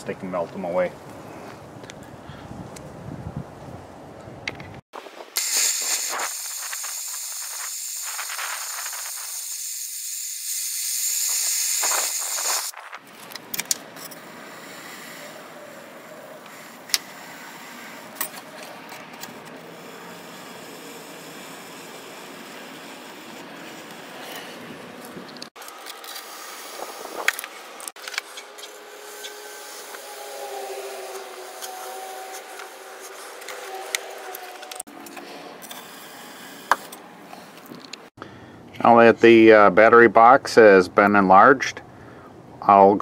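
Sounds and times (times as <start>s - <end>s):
gas torch hissing: 5.3s - 12.8s, 14.2s - 18.2s, 19.7s - 24.9s.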